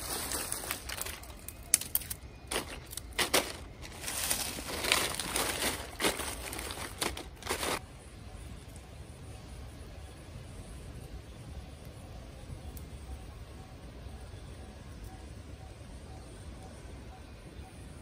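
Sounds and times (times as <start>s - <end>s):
dry leaves and twigs crunching: 0.0s - 7.8s.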